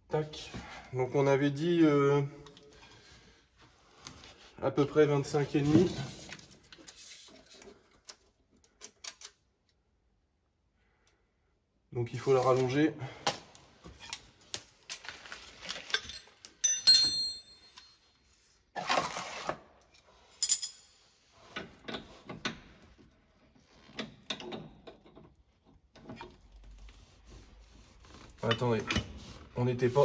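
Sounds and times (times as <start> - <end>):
metal hand tools clinking: 15.9 - 18.0, 20.4 - 21.0.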